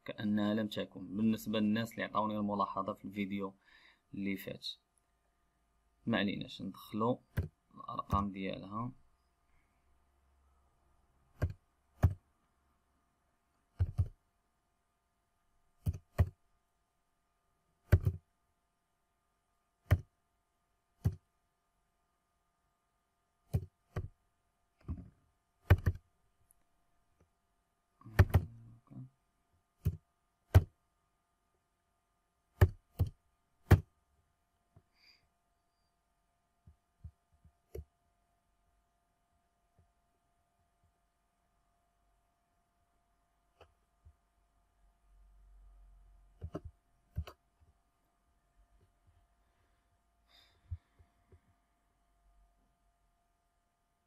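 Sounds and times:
keyboard keystrokes: 17.9 - 18.2, 19.9 - 20.1, 25.6 - 26.0, 28.2 - 28.5.

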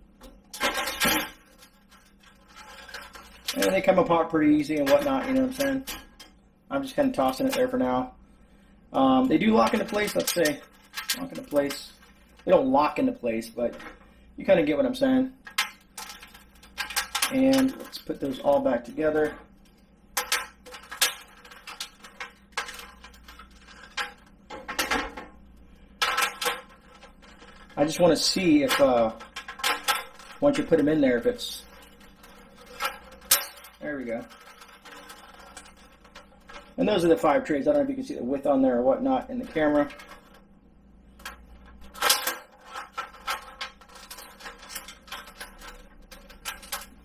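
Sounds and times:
plastic trays clacking together: 0.5 - 6.3, 9.3 - 12.5, 15.4 - 19.4, 20.2 - 25.4, 26.0 - 37.2, 41.2 - 47.0.

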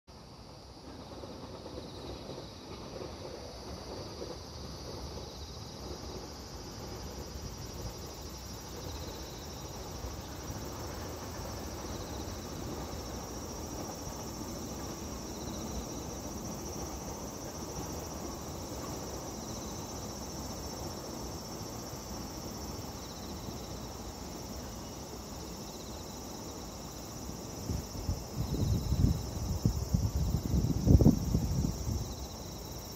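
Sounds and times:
distant freight train rumble: 0.1 - 32.9
insects chirring: 0.1 - 32.9
wind buffeting microphone: 27.6 - 32.4.

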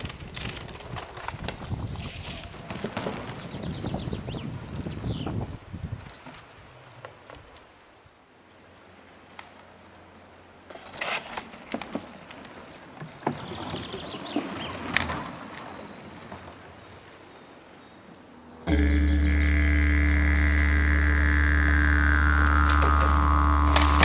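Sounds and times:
wheels rolling over wooden boardwalk: 0.0 - 7.6, 10.6 - 17.2.

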